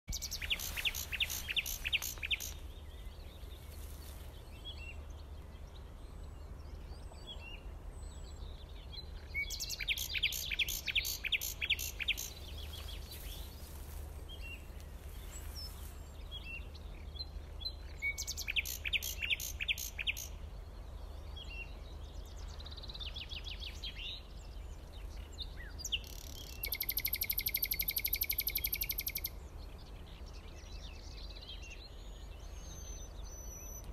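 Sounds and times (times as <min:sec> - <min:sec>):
bird chirps: 0:00.1 - 0:04.7, 0:09.1 - 0:16.4, 0:17.2 - 0:20.4, 0:25.1 - 0:29.4
birds singing: 0:00.1 - 0:33.9.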